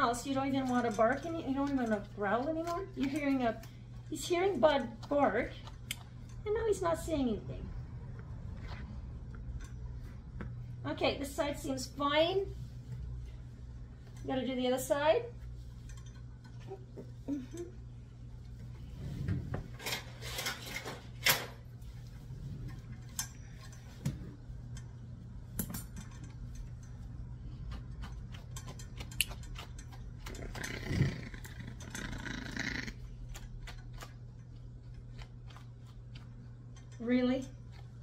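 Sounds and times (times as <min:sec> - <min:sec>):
puppy growling: 0:30.2 - 0:33.4.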